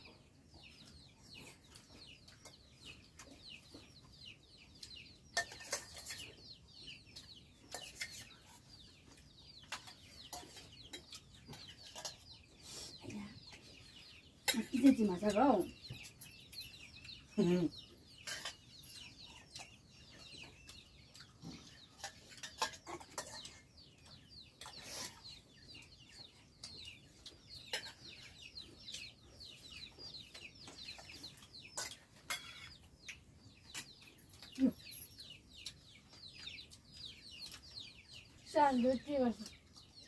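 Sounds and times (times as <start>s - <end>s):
chickens cheeping and clucking: 0.0s - 40.0s
sharp clicks of dishes: 22.0s - 23.6s.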